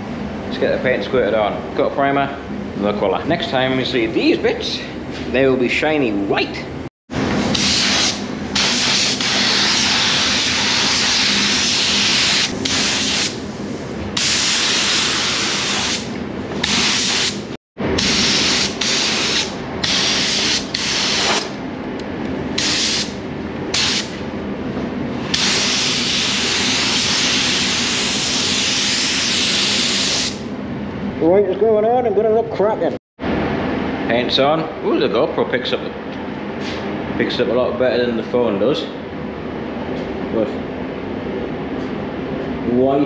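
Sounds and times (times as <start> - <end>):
paint spray gun hissing: 7.5 - 13.4, 14.2 - 21.5, 22.6 - 23.1, 25.3 - 30.4.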